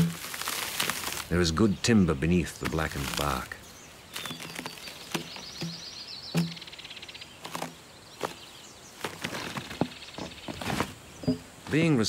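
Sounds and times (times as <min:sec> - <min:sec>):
steel bar knocking on log: 0:05.2 - 0:06.7.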